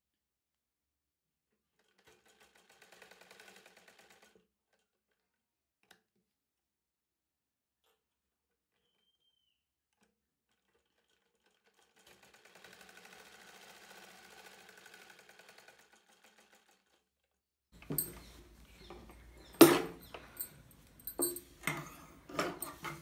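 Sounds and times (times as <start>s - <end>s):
sewing machine stitching: 1.7s - 5.2s, 10.5s - 18.5s
handling clicks and knocks: 17.8s - 23.0s.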